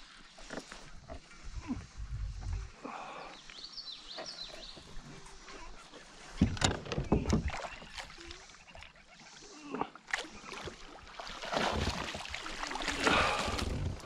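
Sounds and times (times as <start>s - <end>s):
bird chirping: 3.2s - 6.3s.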